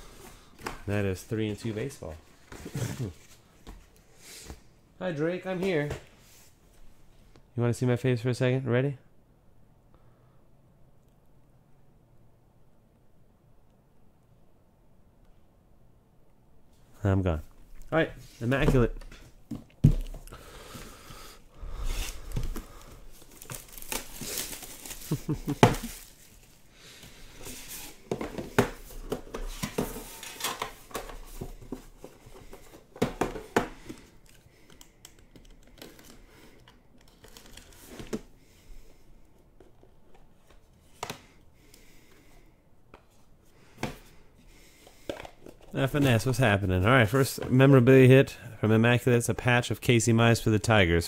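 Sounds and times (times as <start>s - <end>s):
box being opened and handled: 21.8s - 26.6s
plastic wrap tearing and crinkling: 22.1s - 26.7s.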